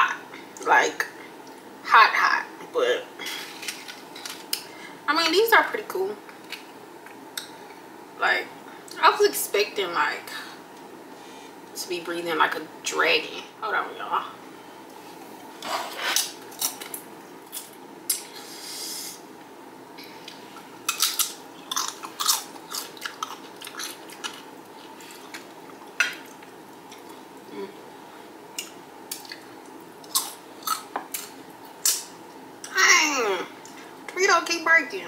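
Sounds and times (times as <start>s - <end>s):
chewing: 20.2s - 27.2s, 28.6s - 32.0s
crunching tortilla chips: 20.8s - 25.5s.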